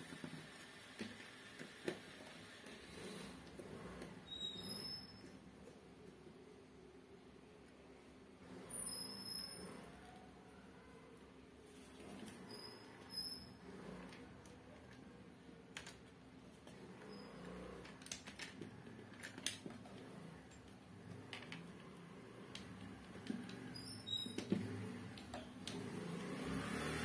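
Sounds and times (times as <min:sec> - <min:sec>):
wires clicking and rustling: 0:13.7 - 0:26.5.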